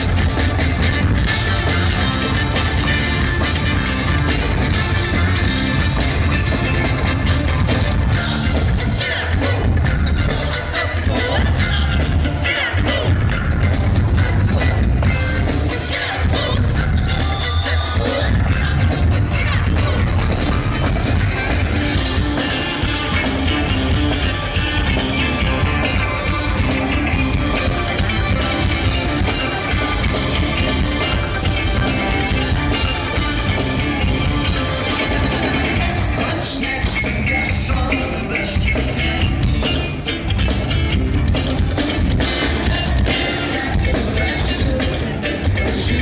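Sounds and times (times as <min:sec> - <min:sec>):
saxophone horn section: 0:00.0 - 0:37.0
bass: 0:00.0 - 0:46.0
drums: 0:00.0 - 0:46.0
electric guitar: 0:00.0 - 0:46.0
people singing: 0:14.4 - 0:23.2, 0:34.7 - 0:39.8, 0:42.2 - 0:46.0.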